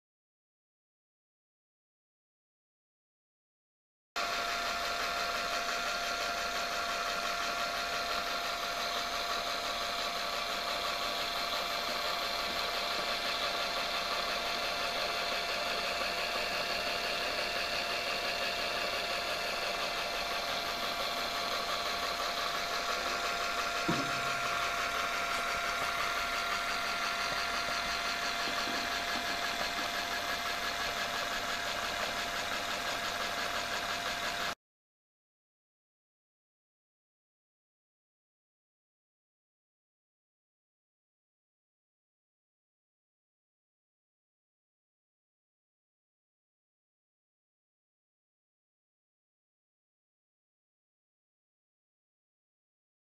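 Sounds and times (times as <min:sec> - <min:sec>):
small electric motor whirring: 0:04.2 - 0:34.6.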